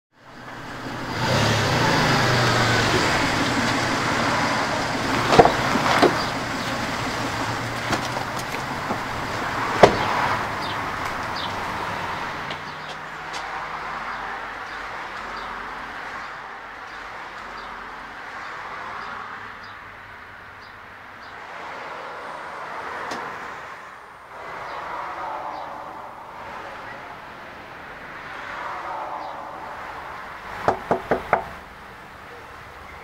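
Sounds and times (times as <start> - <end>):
road noise: 0.1 - 33.0
car engine hum: 0.2 - 16.8, 24.1 - 33.0
sharp knocks: 9.7 - 10.3, 30.6 - 31.6.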